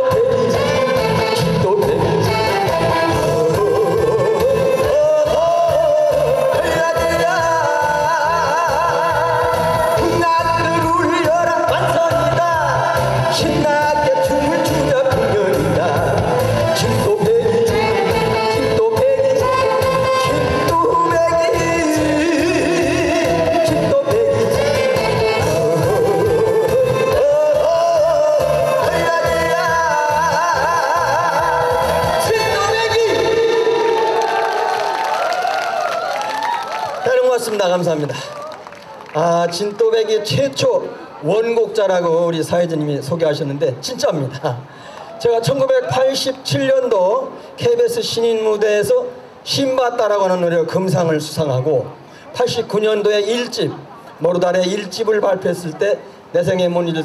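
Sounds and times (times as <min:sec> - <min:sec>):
amplified backing track with bass beat: 0:00.0 - 0:33.6
person singing with vibrato: 0:00.0 - 0:34.8.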